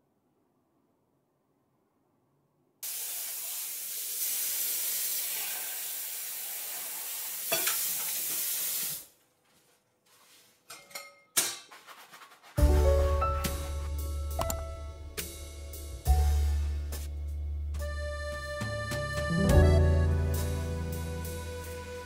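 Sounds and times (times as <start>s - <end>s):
dishes clinking: 7.5s - 7.9s, 10.7s - 11.7s.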